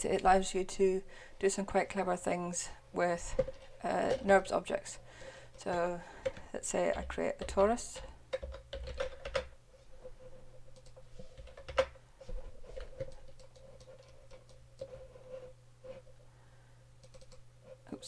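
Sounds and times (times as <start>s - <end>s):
faint steady hum: 0.0s - 18.0s
computer mouse clicks: 10.7s - 12.0s, 12.8s - 15.0s, 17.0s - 17.4s.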